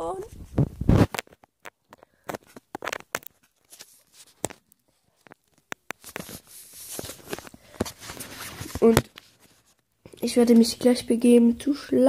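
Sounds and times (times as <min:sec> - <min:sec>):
phone handling clicks and rustles: 0:01.0 - 0:09.3.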